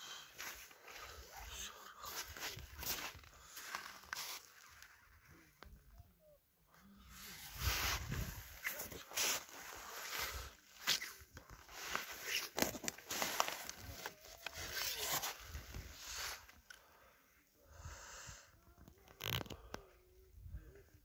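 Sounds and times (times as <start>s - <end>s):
clothing and reeds crackling: 7.6s - 16.6s.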